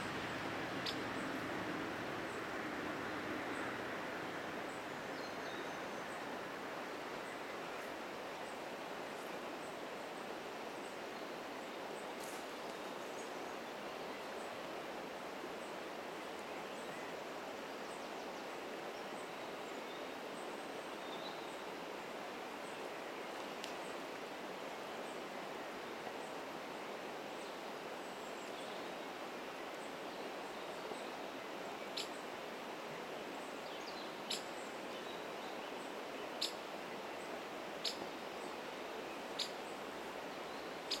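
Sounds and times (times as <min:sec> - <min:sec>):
river rushing over stones: 0:18.4 - 0:41.0.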